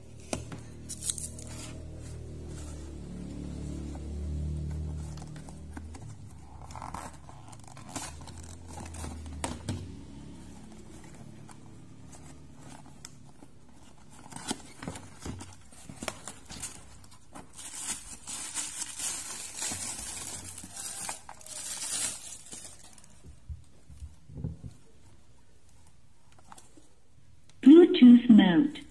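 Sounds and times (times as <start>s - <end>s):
packaging crinkling: 10.7s - 23.5s.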